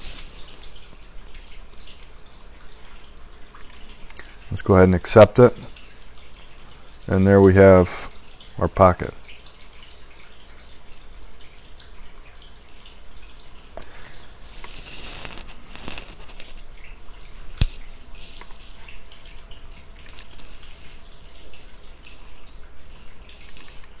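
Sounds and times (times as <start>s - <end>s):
irregular crackling: 14.4s - 18.6s, 20.0s - 22.2s.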